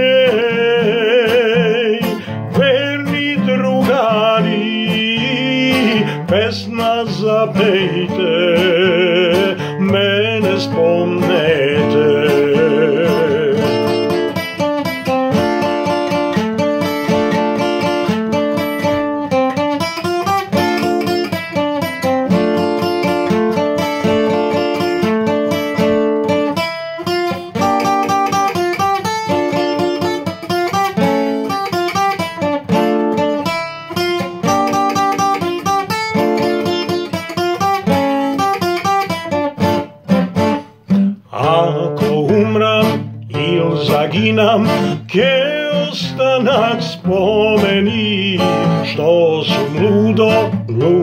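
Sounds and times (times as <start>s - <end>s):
man singing: 0.0s - 16.2s, 40.5s - 51.0s
acoustic guitar strumming: 0.0s - 51.0s.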